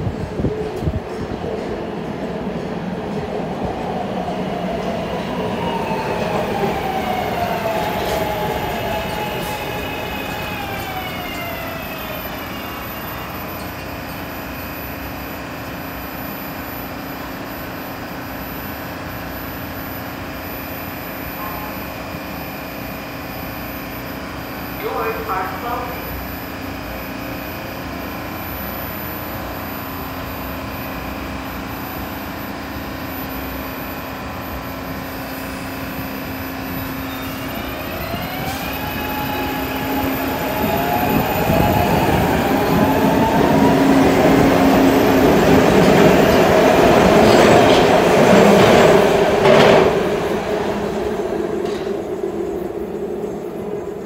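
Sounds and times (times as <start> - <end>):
train electric hum: 0.0 - 54.0
wheels clacking on rails: 38.2 - 52.4.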